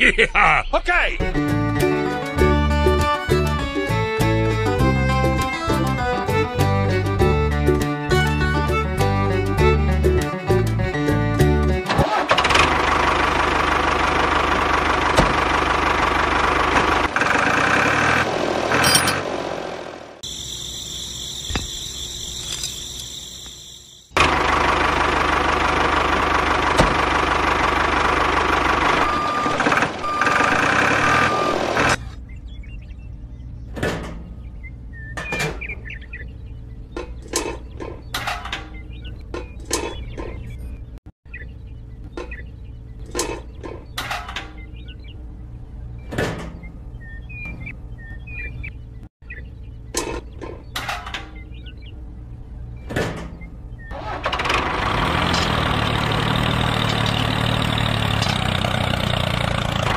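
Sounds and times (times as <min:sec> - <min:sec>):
motor engine running: 0:08.3 - 0:33.7, 0:53.7 - 0:59.9.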